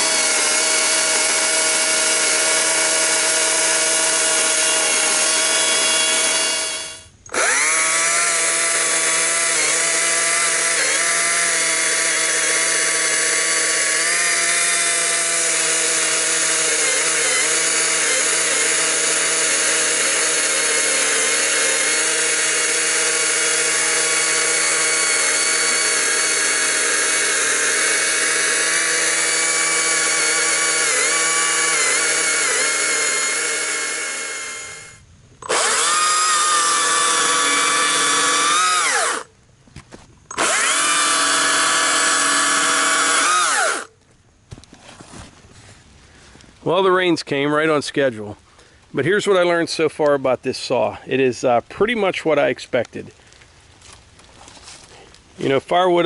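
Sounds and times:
electric chainsaw cutting wood: 0:00.0 - 0:39.3, 0:40.3 - 0:43.9.

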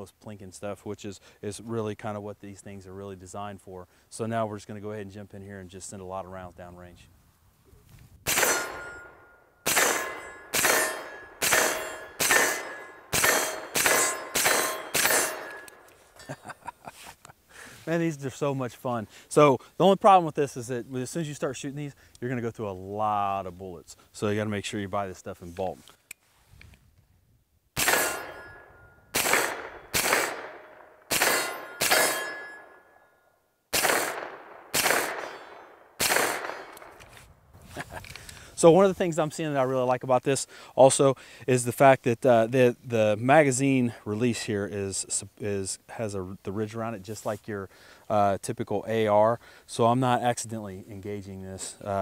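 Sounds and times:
carbine gunshots: 0:08.3 - 0:15.8, 0:27.8 - 0:32.7, 0:33.7 - 0:37.0
steel target clanging: 0:08.3 - 0:16.4, 0:27.8 - 0:33.0, 0:34.8 - 0:36.8.

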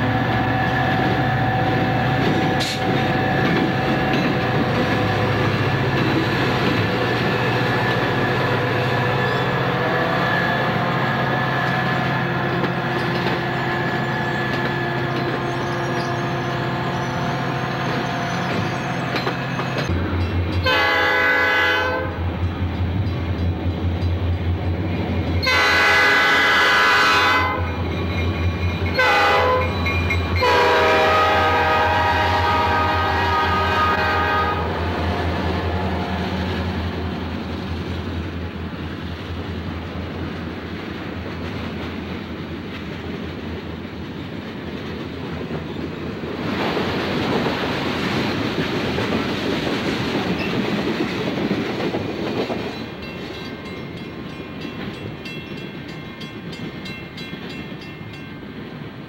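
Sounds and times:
diesel locomotive engine drone: 0:00.0 - 0:59.0
train wheel noise: 0:00.0 - 0:59.0
train chime horn blasts: 0:20.6 - 0:22.2, 0:25.4 - 0:27.8, 0:28.8 - 0:36.3.

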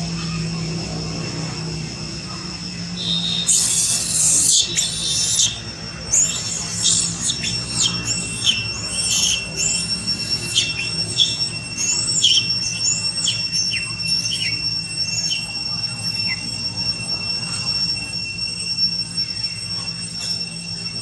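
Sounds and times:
baby monkey squealing cries: 0:03.0 - 0:16.6.

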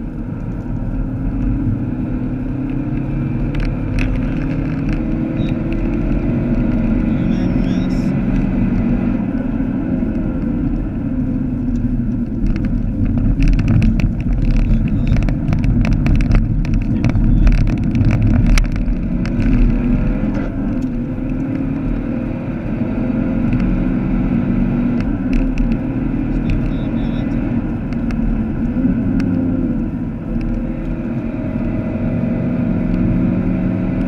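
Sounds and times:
car engine running at speed: 0:00.0 - 0:34.0
knocks and rattles: 0:12.4 - 0:19.7.

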